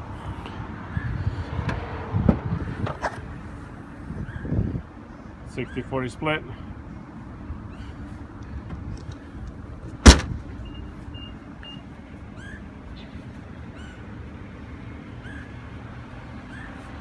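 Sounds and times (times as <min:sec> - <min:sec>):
liftgate shutting thud: 0:10.0 - 0:10.4.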